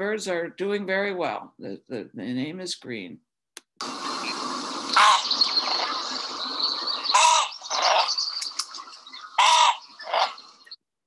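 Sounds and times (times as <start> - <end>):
background hiss: 3.8 - 9.3
grebe calling: 4.1 - 10.8.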